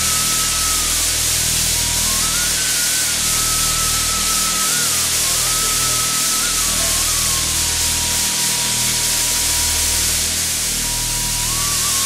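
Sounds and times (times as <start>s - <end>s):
low electrical hum: 0.0s - 12.0s
steady loud hiss of beans: 0.0s - 12.0s
thin high whine: 0.0s - 12.0s.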